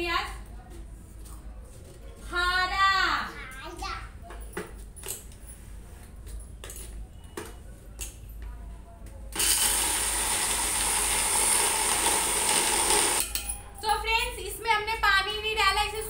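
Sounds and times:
mixer grinder whining: 9.4 - 13.2.

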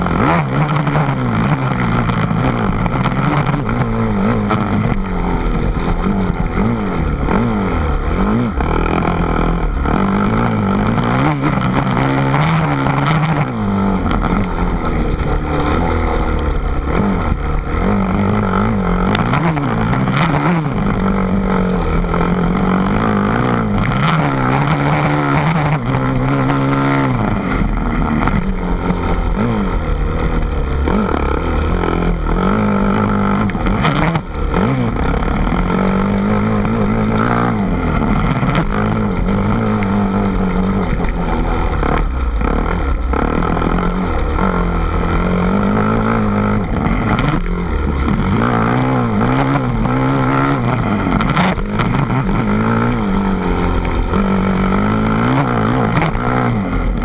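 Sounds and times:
engine running: 0.0 - 57.0.

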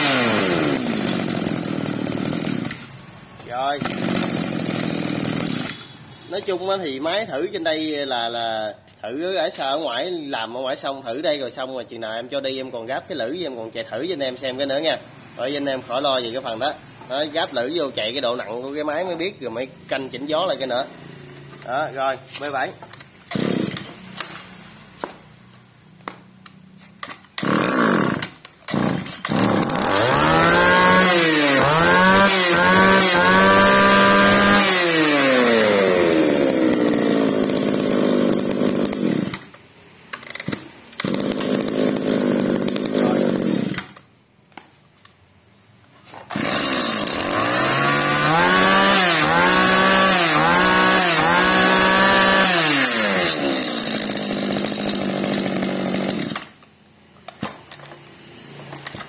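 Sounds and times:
brush cutter engine revving: 0.0 - 3.0, 3.8 - 5.9, 22.9 - 24.4, 27.3 - 39.6, 40.2 - 44.0, 46.2 - 56.6.

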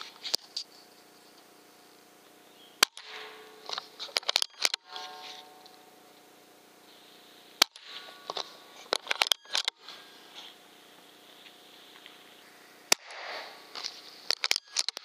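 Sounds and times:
faint steady whine: 0.0 - 15.0
air rifle cracks: 2.8 - 5.3, 12.9 - 15.0
clicks: 2.8 - 6.3, 7.6 - 10.0, 12.9 - 15.0.

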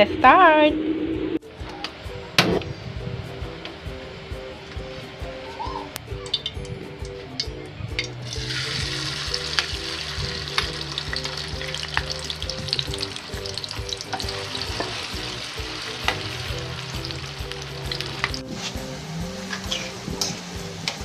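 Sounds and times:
tofu sizzling in hot oil: 8.3 - 18.4.

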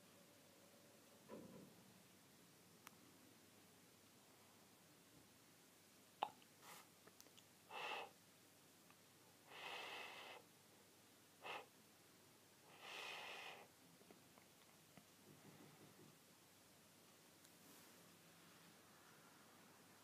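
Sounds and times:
breathy nose sniffs: 6.6 - 6.9, 7.7 - 8.2, 9.5 - 10.5, 11.4 - 11.7, 12.7 - 13.7.

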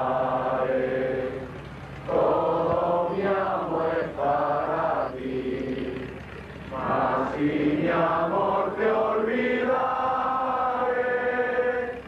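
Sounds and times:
voices singing a hymn: 0.0 - 12.0.

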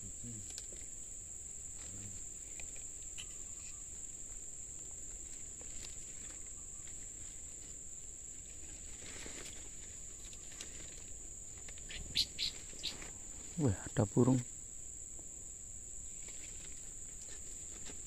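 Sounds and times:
soft rustle: 1.7 - 13.6, 16.0 - 18.0
high-pitched insect drone: 9.8 - 14.4.

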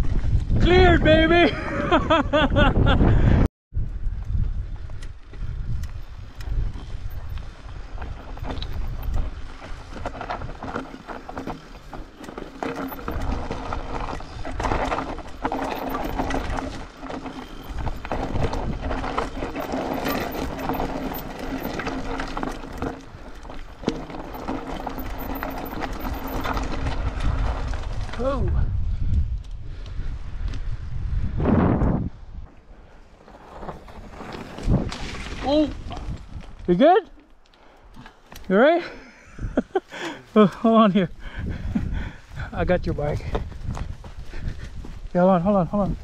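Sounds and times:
wind buffeting microphone: 0.0 - 12.1, 13.0 - 36.7, 41.1 - 46.0
bike tyres crunching over gravel: 4.4 - 28.4, 32.6 - 38.6, 41.6 - 46.0
bike chain clattering: 8.1 - 27.4.

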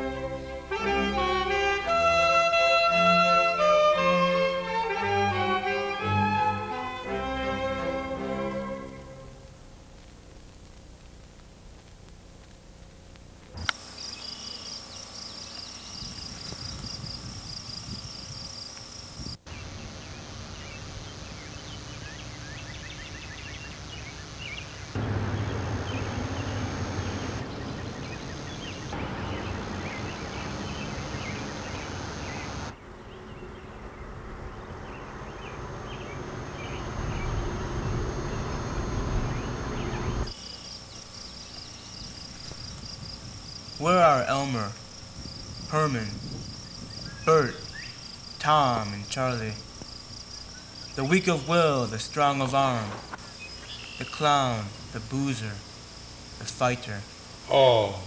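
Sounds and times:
insects chirping trill: 0.0 - 58.0
low rumbling noise: 24.8 - 40.4.

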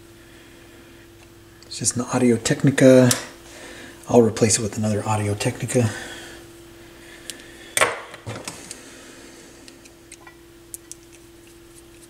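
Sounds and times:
faint hum: 0.0 - 12.0.

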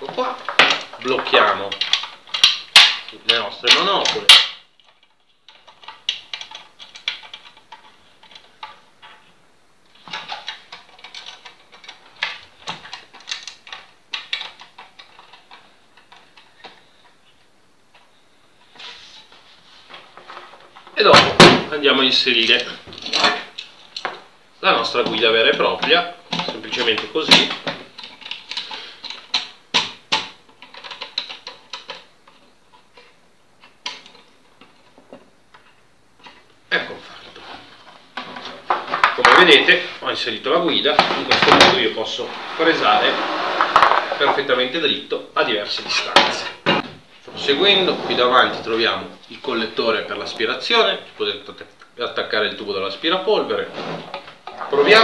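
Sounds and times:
metal parts clicking and rattling: 0.0 - 9.3, 10.0 - 17.2, 22.4 - 24.2, 24.8 - 36.4.

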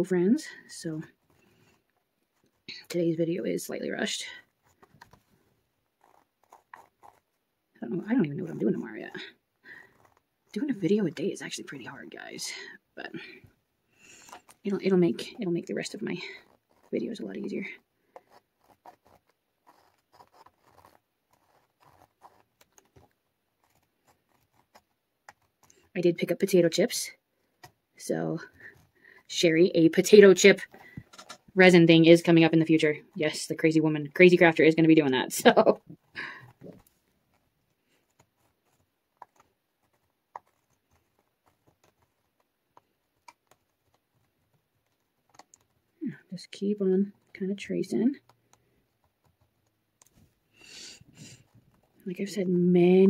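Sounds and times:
pen scratching on paper: 6.0 - 12.2, 14.1 - 26.0, 36.0 - 45.7.

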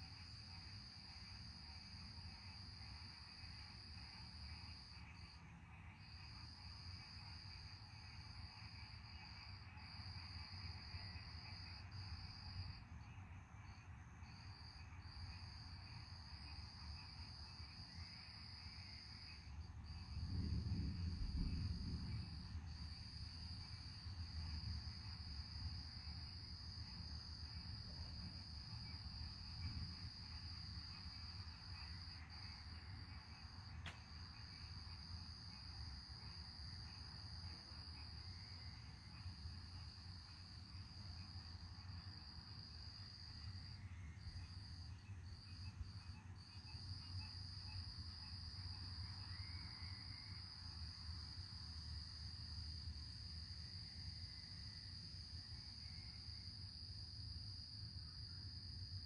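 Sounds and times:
faint low rumble: 19.7 - 30.4.

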